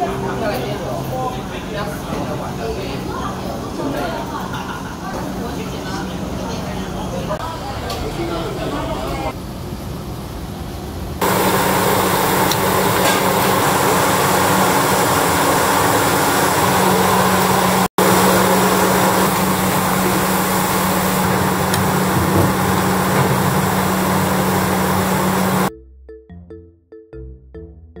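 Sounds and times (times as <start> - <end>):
broth boiling hard in a pot: 11.2 - 25.7.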